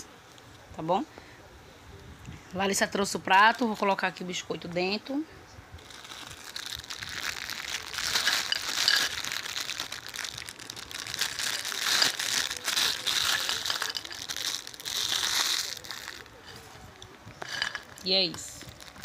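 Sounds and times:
plastic wrapper crinkling: 0:05.8 - 0:19.0.

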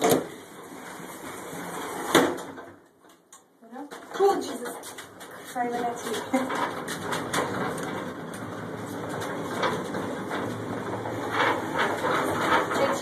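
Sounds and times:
tram car mechanical rumble: 0:05.6 - 0:13.0.

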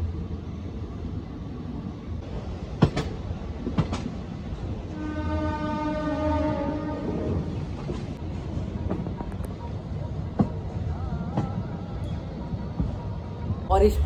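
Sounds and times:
train rumbling: 0:00.0 - 0:14.0
train wheels clicking on rail joints: 0:02.3 - 0:04.7
train horn: 0:04.9 - 0:07.5.

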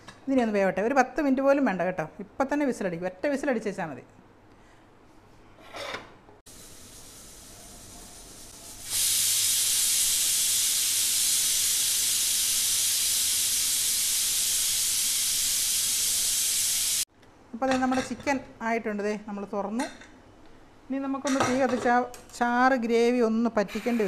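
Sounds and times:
pressure cooker steam hissing: 0:06.5 - 0:17.1.

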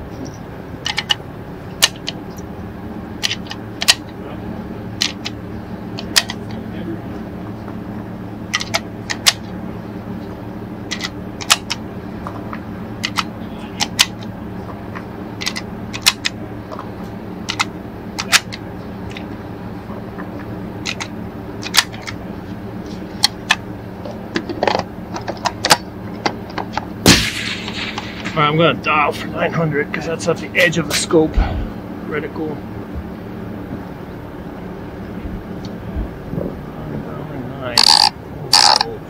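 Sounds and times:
cartridges clicking into magazine: 0:10.9 - 0:11.8, 0:13.0 - 0:14.3, 0:15.4 - 0:16.4, 0:17.5 - 0:19.2.

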